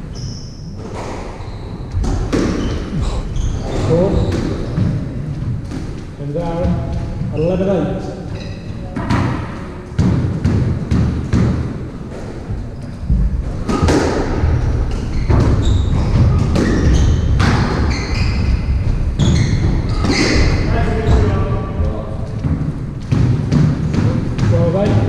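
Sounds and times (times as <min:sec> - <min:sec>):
shoes squeaking on wooden floor: 0:00.0 - 0:09.0, 0:14.4 - 0:23.2
squash ball hit by rackets: 0:02.0 - 0:02.9, 0:09.0 - 0:11.9, 0:13.1 - 0:17.9, 0:22.4 - 0:25.0
ball hitting walls: 0:02.0 - 0:03.0, 0:09.0 - 0:12.4, 0:13.1 - 0:18.1, 0:22.4 - 0:25.0.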